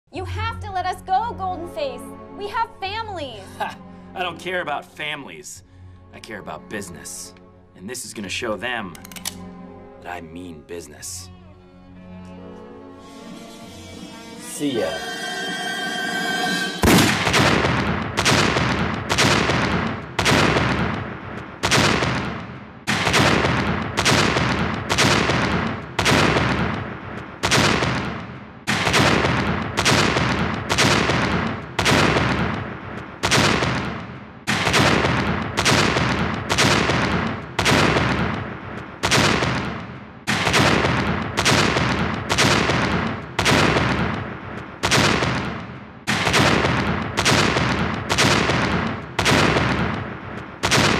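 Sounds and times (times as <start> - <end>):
explosion blasts: 16.8 - 50.9.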